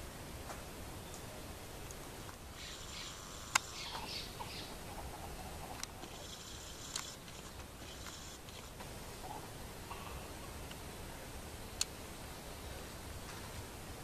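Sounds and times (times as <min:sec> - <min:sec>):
sharp clicks: 0:03.5 - 0:04.0, 0:05.8 - 0:08.8.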